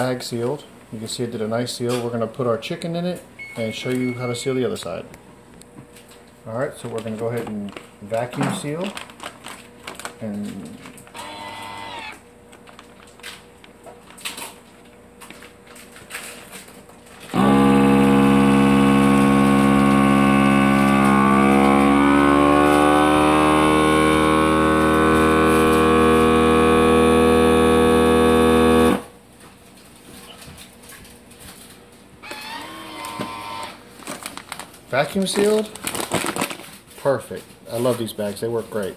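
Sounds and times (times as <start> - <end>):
vacuum sealer pump humming: 3.4 - 29.6, 31.6 - 36.6.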